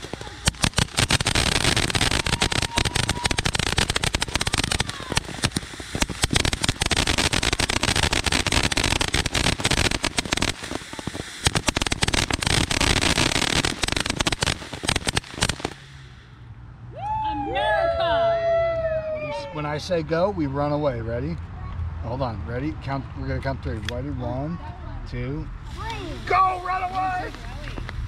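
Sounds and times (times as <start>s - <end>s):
firework crackling: 0.0s - 16.5s, 25.6s - 28.0s
firework hissing: 0.0s - 16.5s, 25.6s - 28.0s.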